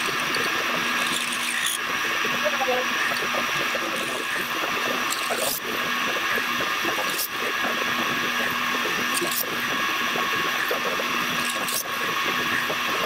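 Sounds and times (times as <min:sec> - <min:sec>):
faint hum: 0:00.0 - 0:13.0
milling machine drilling metal: 0:00.0 - 0:13.0
sharp ticks: 0:03.0 - 0:09.5.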